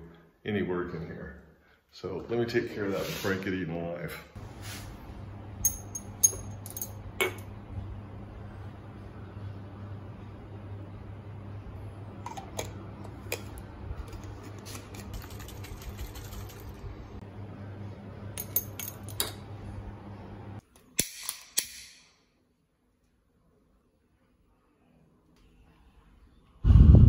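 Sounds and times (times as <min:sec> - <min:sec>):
low hum: 0:04.4 - 0:20.6, 0:25.6 - 0:27.0.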